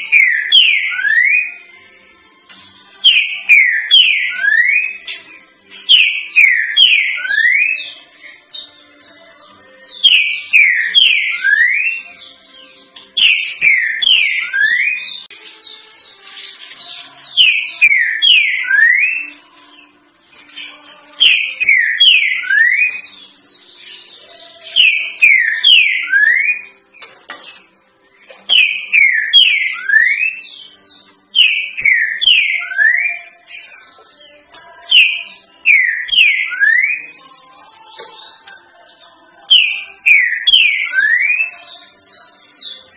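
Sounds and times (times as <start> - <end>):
bird whistling three-note song: 3.0 - 5.0, 21.2 - 23.1, 24.7 - 26.7, 28.5 - 33.4.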